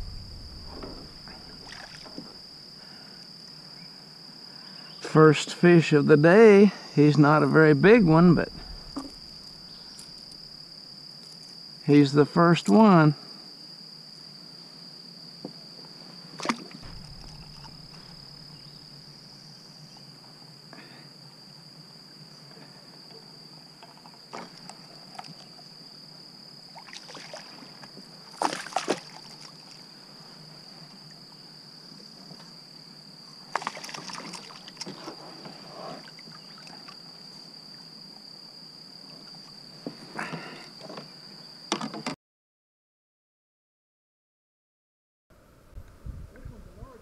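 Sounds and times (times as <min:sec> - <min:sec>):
sharp knocks: 0:00.0 - 0:02.3, 0:16.8 - 0:18.8
insects droning: 0:00.0 - 0:42.2, 0:45.3 - 0:47.0
splashes on water: 0:28.4 - 0:29.6, 0:33.5 - 0:34.9.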